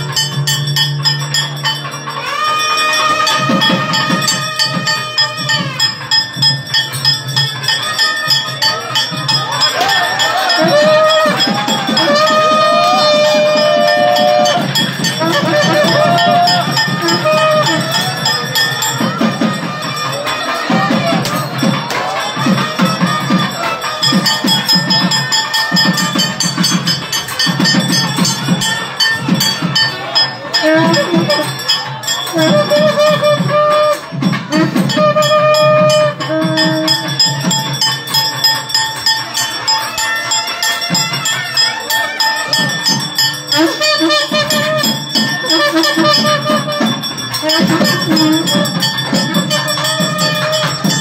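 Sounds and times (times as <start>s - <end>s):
bells ringing: 0.0s - 51.0s
quick drum beats: 0.0s - 51.0s
wavering melodic notes: 0.0s - 51.0s.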